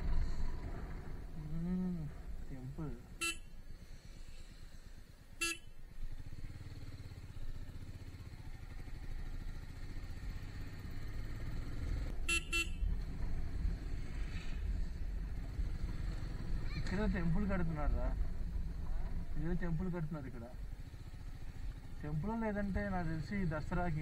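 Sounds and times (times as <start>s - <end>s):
motorcycle engine rumbling: 0.0s - 24.0s
horn beeps: 3.2s - 3.5s, 5.4s - 5.8s, 12.2s - 12.9s.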